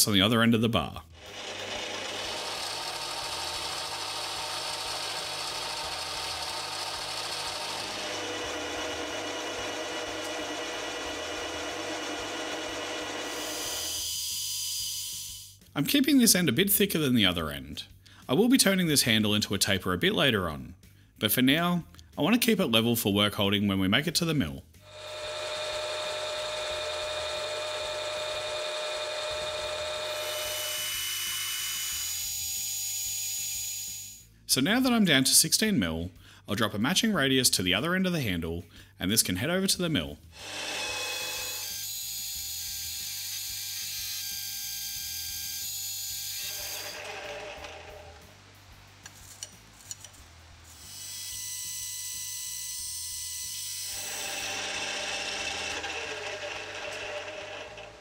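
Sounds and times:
metal lathe humming: 1.2 - 14.0, 24.9 - 30.8, 46.4 - 48.2, 53.9 - 58.0
tool cutting steel bar: 1.2 - 14.3, 24.9 - 32.6, 40.4 - 48.2, 49.0 - 58.0
hiss of metal cutting: 13.2 - 14.0.

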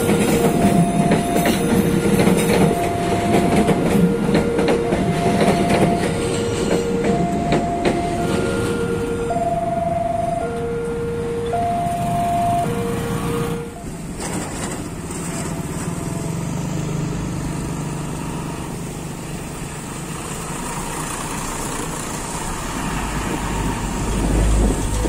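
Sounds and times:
two-tone crossing warning signal: 0.0 - 14.4, 23.4 - 25.0
bus engine passing: 0.0 - 25.0
road traffic: 0.0 - 25.0.

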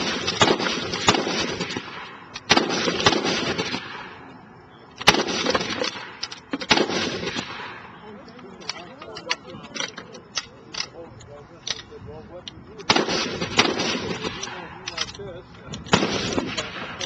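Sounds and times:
gunshots with long echo: 0.0 - 4.3, 5.0 - 8.1, 12.9 - 14.9, 15.9 - 17.0.

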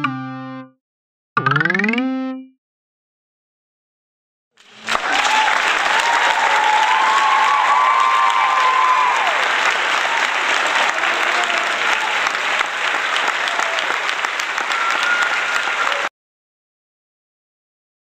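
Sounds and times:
crowd applause: 4.6 - 16.1.

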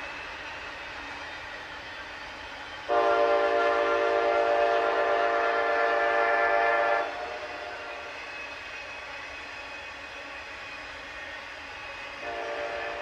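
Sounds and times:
rolling train noise: 0.0 - 13.0
locomotive air horn blast: 2.9 - 8.1, 12.2 - 13.0.

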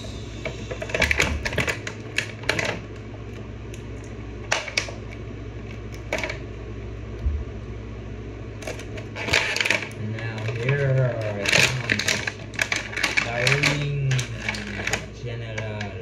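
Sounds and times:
steady low hum: 0.0 - 16.0
packaging rustling: 8.6 - 15.1.

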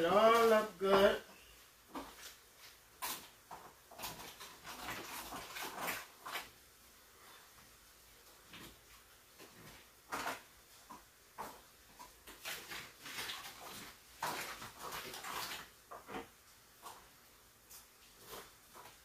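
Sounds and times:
spoon scraping foil pan: 2.0 - 6.6, 11.4 - 17.1.

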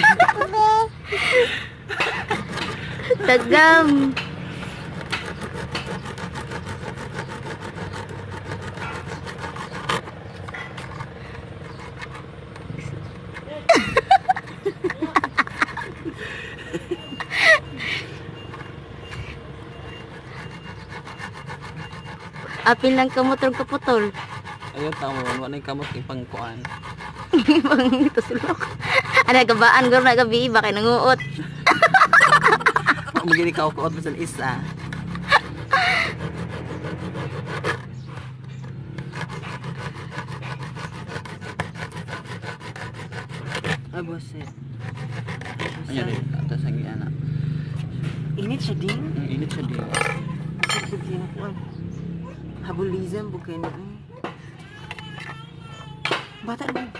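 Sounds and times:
people chuckling: 0.0 - 3.5, 13.5 - 18.2, 27.3 - 29.3, 31.3 - 33.5
hacksaw rasping on metal ring: 1.9 - 53.7.

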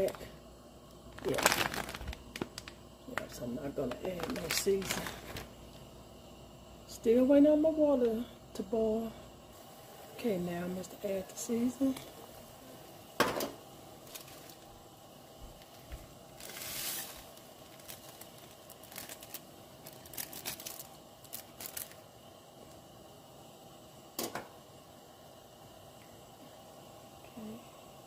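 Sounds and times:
plastic bag crinkling: 1.1 - 5.5, 14.0 - 14.7, 16.4 - 22.0
bag tearing: 1.2 - 2.7, 16.4 - 22.0
small clicks and crackles: 1.2 - 5.5, 16.4 - 22.0.

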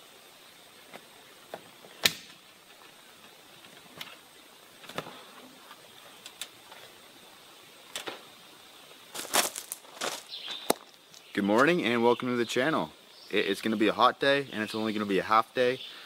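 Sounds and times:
footsteps: 9.1 - 11.8.

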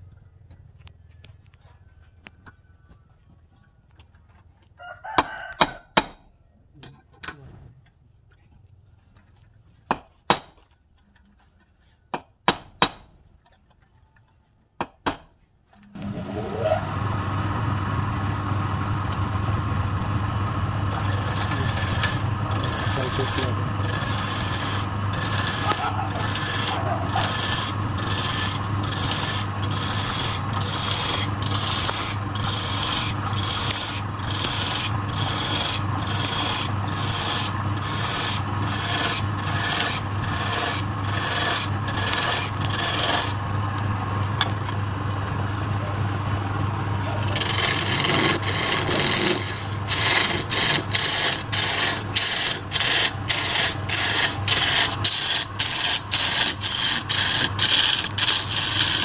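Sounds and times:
chisel cutting spinning wood: 16.0 - 44.8, 47.0 - 59.0
wood lathe humming: 16.0 - 59.0.

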